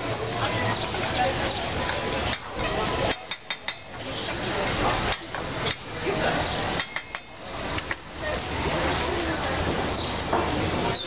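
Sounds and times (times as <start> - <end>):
knife blade tapping clay pot: 3.1 - 4.0, 6.8 - 7.4.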